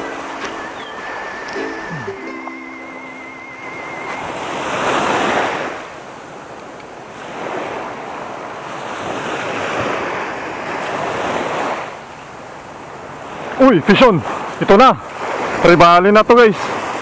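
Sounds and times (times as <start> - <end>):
small waves washing on sand: 4.0 - 17.0.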